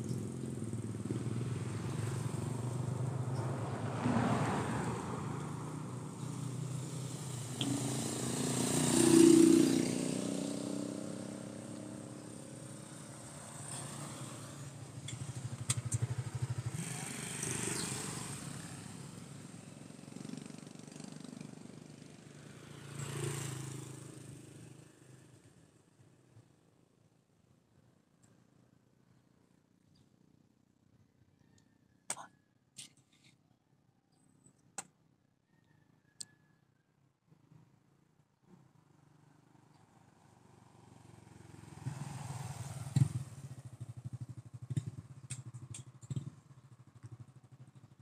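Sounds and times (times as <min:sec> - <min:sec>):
vehicles passing: 0:00.0 - 0:26.6, 0:38.8 - 0:47.6.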